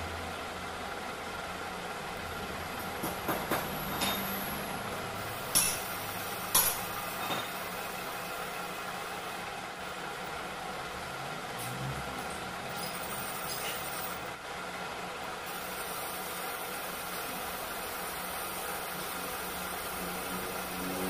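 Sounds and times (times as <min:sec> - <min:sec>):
metal lathe running: 0:15.2 - 0:21.0.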